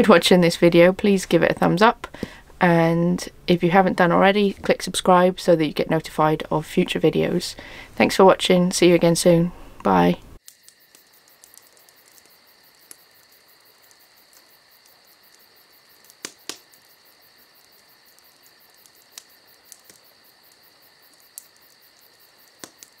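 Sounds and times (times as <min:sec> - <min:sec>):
sharp clicks: 0:16.0 - 0:16.9, 0:18.8 - 0:20.1, 0:22.4 - 0:23.0.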